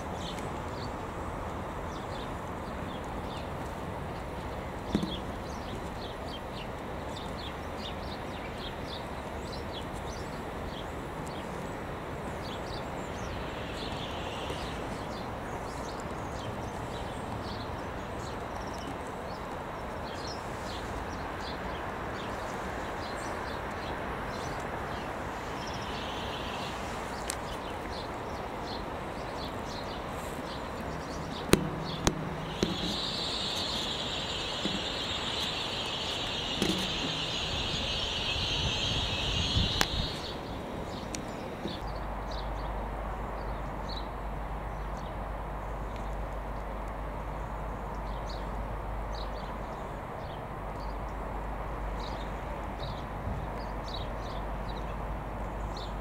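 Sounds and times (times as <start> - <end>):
steady high hiss: 0.0 - 18.3, 19.2 - 41.8
passing trains running noise: 0.0 - 43.3
short high chirps: 31.7 - 40.3.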